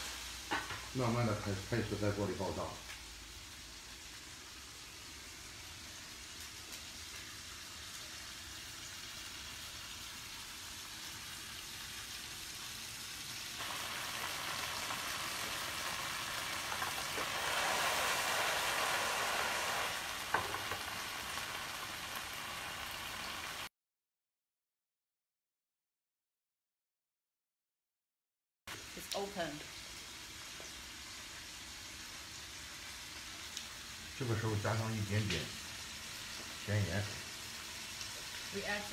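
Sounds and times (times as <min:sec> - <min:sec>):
clams sizzling in a pan: 0:00.0 - 0:23.7, 0:28.7 - 0:38.9.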